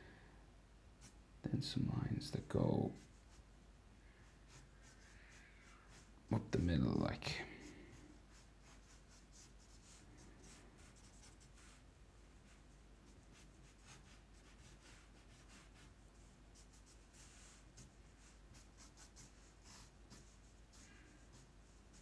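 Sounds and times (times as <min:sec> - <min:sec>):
marker scratching on paper: 0:04.5 - 0:06.1, 0:08.3 - 0:11.8, 0:12.4 - 0:22.0.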